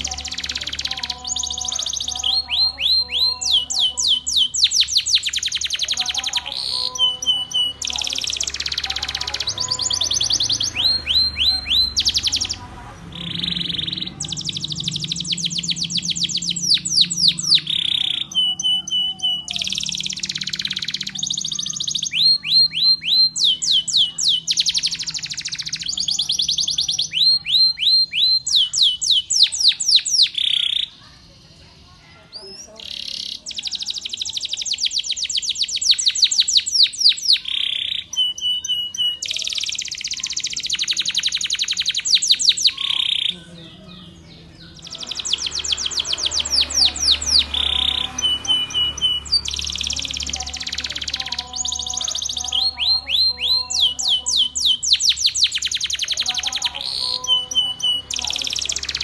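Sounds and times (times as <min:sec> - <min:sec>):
canary singing trills: 0:00.0 - 0:59.0.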